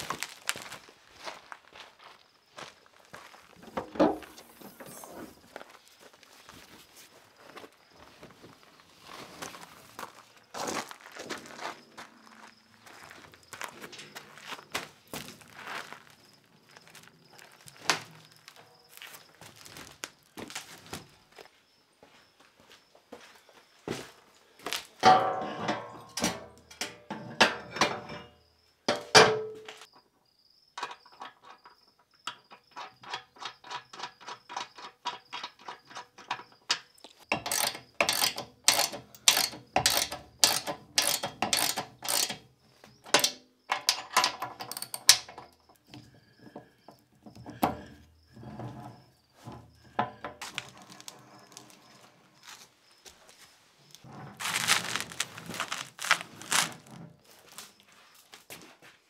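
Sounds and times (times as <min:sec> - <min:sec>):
ratchet wrench clicking: 0:37.3 - 0:42.4.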